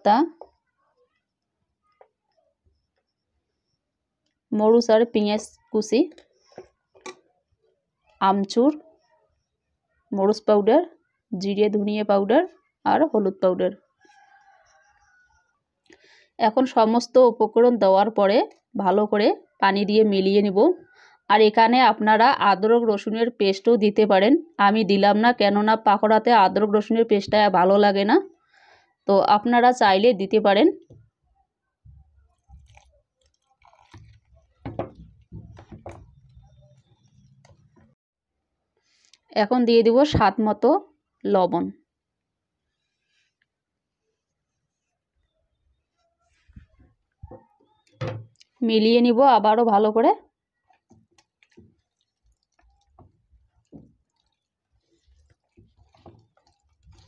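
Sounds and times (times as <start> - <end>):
hand mixing food in a bowl: 30.8 - 38.0, 42.5 - 57.0.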